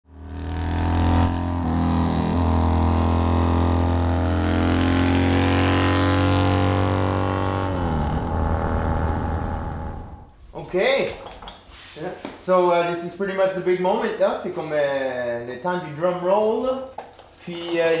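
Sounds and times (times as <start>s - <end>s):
motorcycle engine running: 0.0s - 10.3s.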